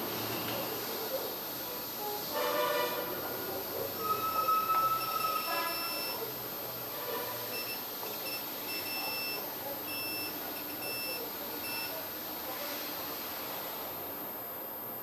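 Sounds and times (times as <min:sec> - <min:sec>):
multimeter beeping: 0:04.0 - 0:06.3, 0:07.5 - 0:12.0.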